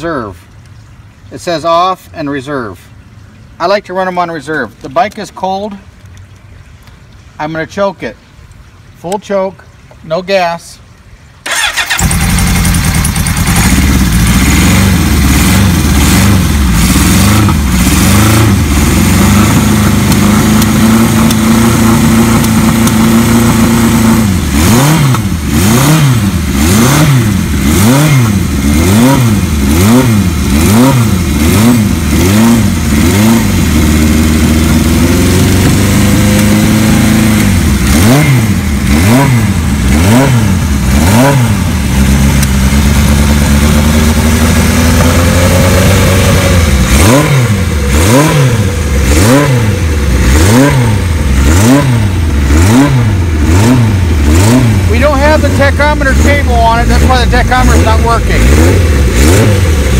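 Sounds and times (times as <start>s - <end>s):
motorcycle engine revving: 11.4s - 59.9s.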